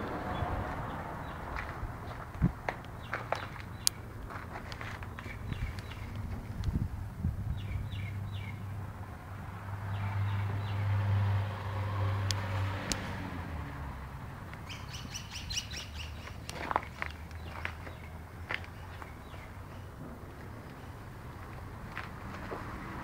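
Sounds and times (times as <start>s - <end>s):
steady low rumble: 0.0s - 9.6s
small birds chirping: 3.0s - 4.2s, 4.8s - 6.8s, 7.5s - 8.8s, 14.5s - 20.0s.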